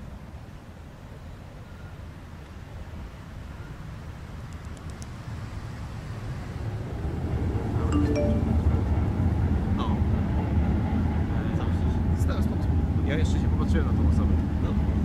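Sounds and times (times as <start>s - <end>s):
short chime: 8.0s - 8.8s.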